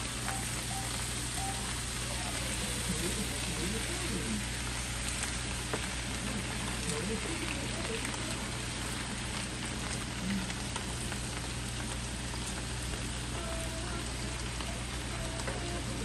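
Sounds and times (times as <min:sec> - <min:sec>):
cabbage sizzling in a skillet: 0:00.0 - 0:16.0.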